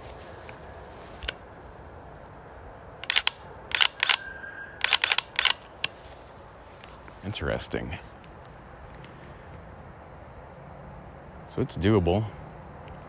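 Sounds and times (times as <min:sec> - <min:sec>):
rifle trigger clicking: 0:03.0 - 0:05.9.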